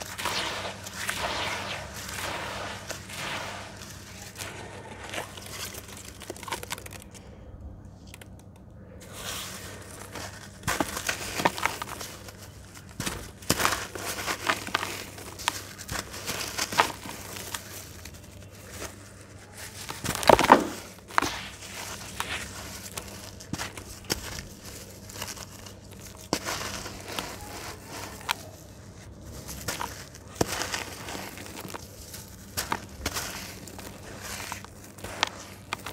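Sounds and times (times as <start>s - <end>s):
crumbs and mud dropping into water: 0.0s - 7.2s, 20.0s - 22.2s
crunching of crumbling slab: 0.0s - 7.3s, 9.0s - 35.9s.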